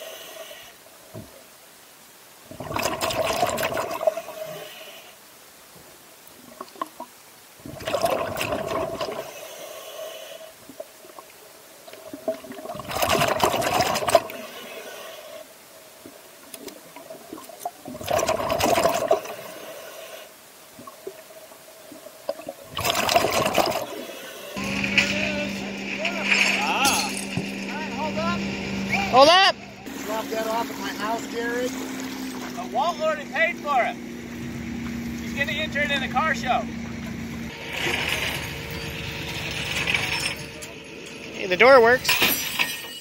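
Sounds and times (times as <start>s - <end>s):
exhaled bubbles rushing underwater: 2.4s - 4.5s, 6.4s - 9.4s, 10.6s - 14.7s, 15.9s - 19.6s, 20.7s - 24.9s.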